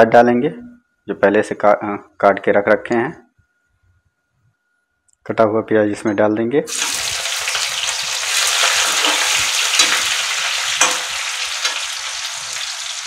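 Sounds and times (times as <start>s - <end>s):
onions sizzling in hot oil: 6.7s - 13.0s.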